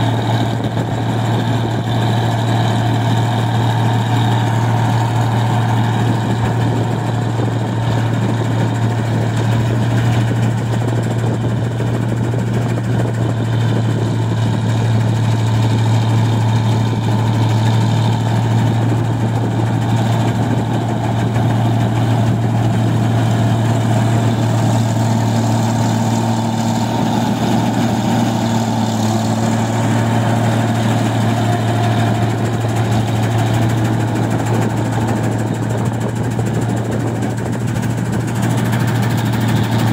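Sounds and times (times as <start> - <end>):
combine harvester running: 0.0 - 39.9.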